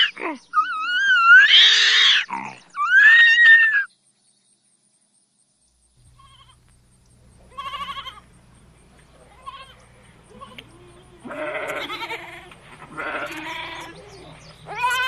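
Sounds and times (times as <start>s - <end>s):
orangutan calling: 0.0s - 3.9s, 6.0s - 15.0s
low steady hum: 5.7s - 15.0s
goat bleating: 6.0s - 6.7s, 7.4s - 15.0s.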